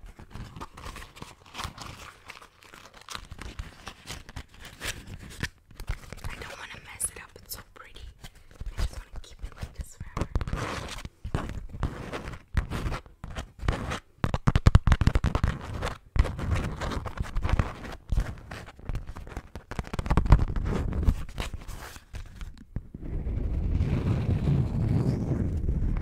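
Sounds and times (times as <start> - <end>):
wax wrap crinkling: 0.0 - 22.8
wrap rubbing against microphone: 3.4 - 22.5.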